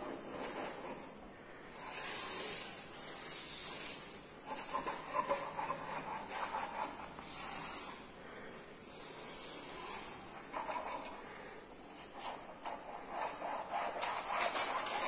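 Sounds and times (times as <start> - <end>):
paintbrush scraping over paper: 0.0 - 8.1, 8.8 - 15.0.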